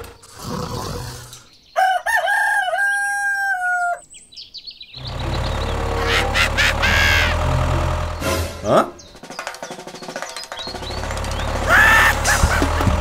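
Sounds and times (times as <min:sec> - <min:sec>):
rooster crowing: 0:01.8 - 0:04.0, 0:05.9 - 0:07.4, 0:11.6 - 0:12.8
high-pitched bird chirps: 0:03.9 - 0:07.4.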